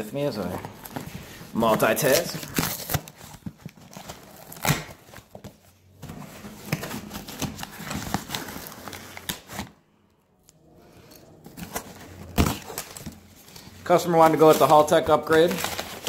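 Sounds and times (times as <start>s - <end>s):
packing paper rustling: 0.4s - 9.8s, 11.0s - 16.0s.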